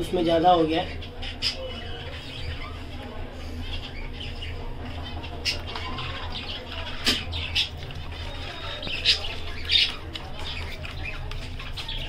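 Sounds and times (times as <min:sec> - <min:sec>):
budgies chirping and squawking: 0:00.0 - 0:12.0.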